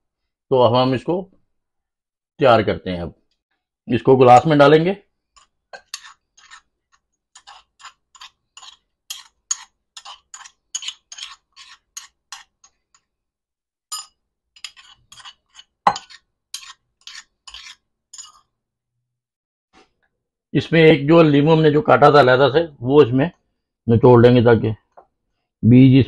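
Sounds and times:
metal spoon scraping a mortar: 5.4s - 13.1s, 14.6s - 18.4s.

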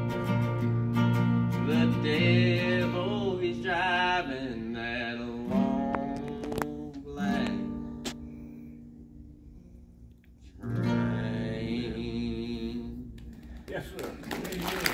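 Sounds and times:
acoustic guitar strumming: 0.0s - 9.9s, 10.6s - 13.6s
young man singing: 1.6s - 7.9s, 10.7s - 13.2s.

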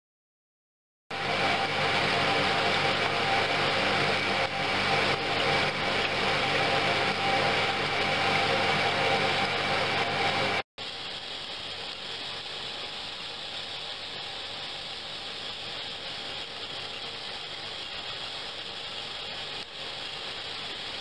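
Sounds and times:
machine hum: 1.1s - 13.0s.

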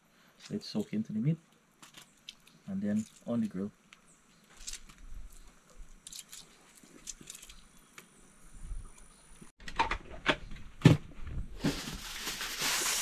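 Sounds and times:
aluminium foil crinkling: 1.8s - 3.7s, 4.4s - 7.9s, 11.6s - 13.0s.

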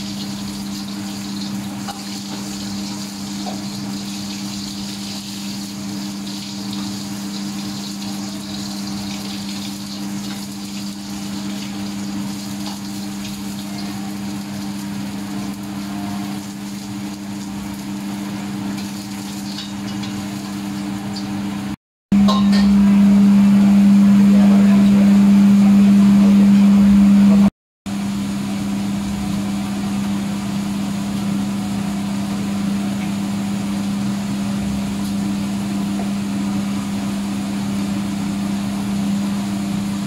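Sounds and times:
egg sizzling in oil: 0.0s - 21.7s.

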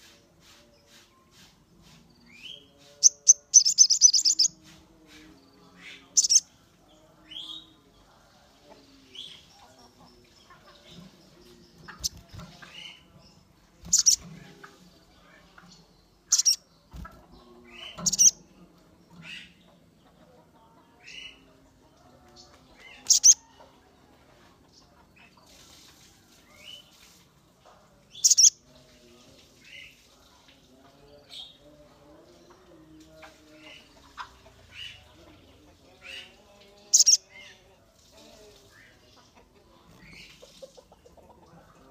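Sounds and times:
bird high chirps: 2.4s - 4.6s, 5.9s - 6.4s, 13.8s - 14.2s, 16.2s - 16.6s, 17.8s - 18.4s, 23.0s - 23.4s, 28.2s - 28.6s, 36.9s - 37.3s.

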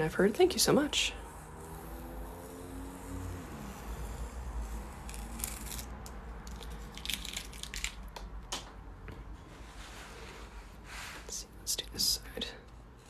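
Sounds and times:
masking tape peeling off paper: 1.3s - 8.2s.

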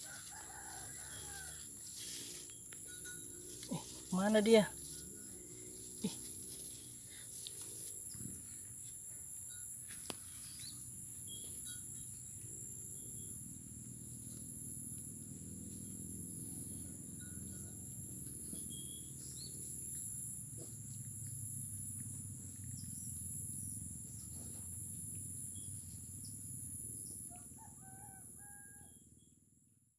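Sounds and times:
insect drone: 0.0s - 29.6s.

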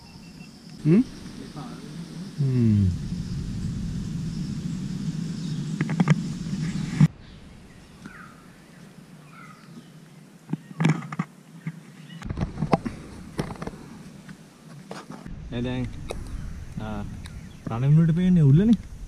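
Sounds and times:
bird chirps: 0.0s - 10.8s, 16.0s - 18.0s
low rumble: 1.1s - 7.9s, 15.3s - 19.0s.

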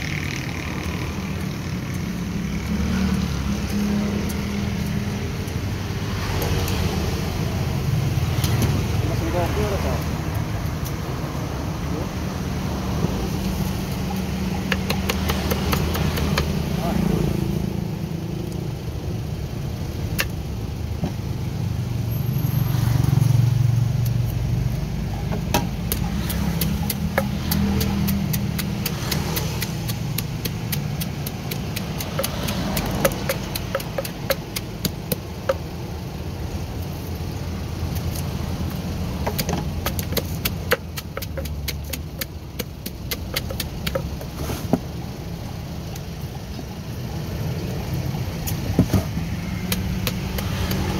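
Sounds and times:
traffic engine rumble: 0.0s - 50.9s
wooden pestle knocking in mortar: 14.6s - 16.6s, 25.2s - 35.6s, 39.1s - 44.4s, 48.7s - 50.9s.

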